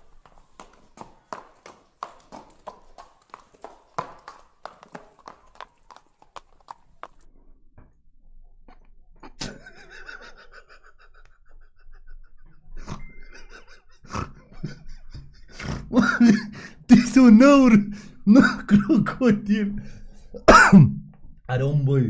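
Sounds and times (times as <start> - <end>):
man laughing hard: 9.4 - 16.8.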